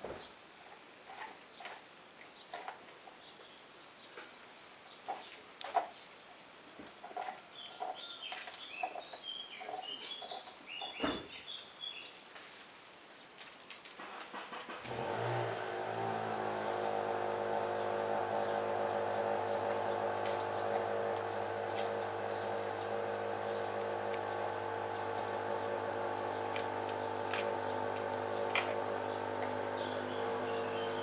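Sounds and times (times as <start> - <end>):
engine starting and running: 14.0 - 31.0.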